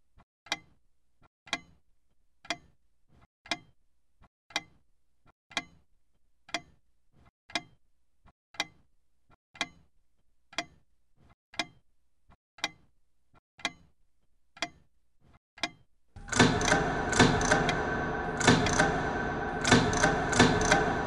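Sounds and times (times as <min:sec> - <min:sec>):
clock ticking: 0:11.6 - 0:11.8, 0:15.6 - 0:21.0.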